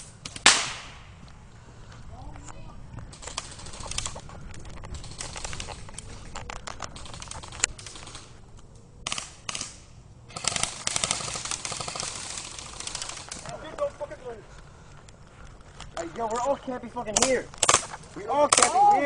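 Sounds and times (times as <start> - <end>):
airsoft rifle firing bursts: 10.3 - 13.4.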